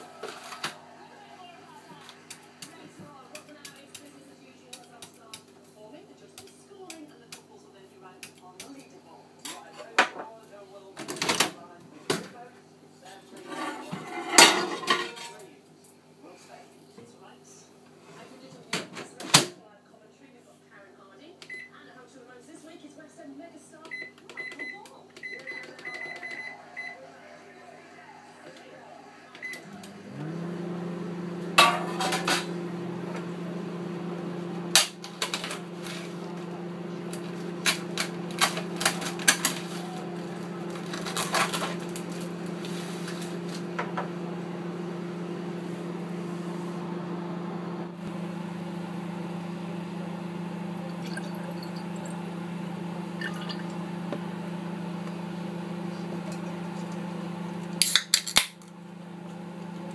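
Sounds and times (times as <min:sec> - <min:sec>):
microwave oven humming: 0:00.0 - 0:04.1, 0:23.9 - 0:59.9.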